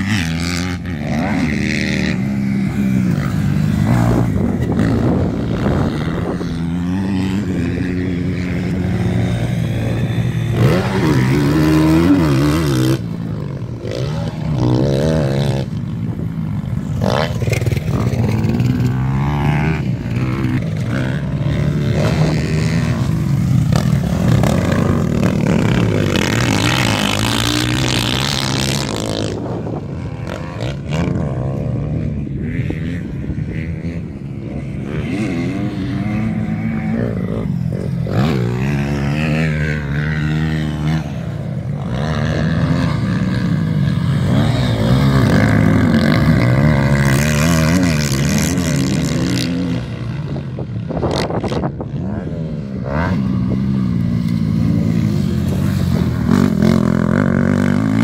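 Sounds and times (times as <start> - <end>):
dirt bike engines revving: 0.0 - 58.0.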